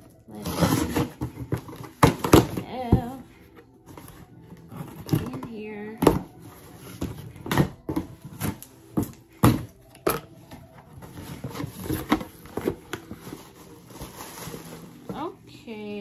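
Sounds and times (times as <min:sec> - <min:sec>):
rustling of plastic packing: 0:10.6 - 0:16.0.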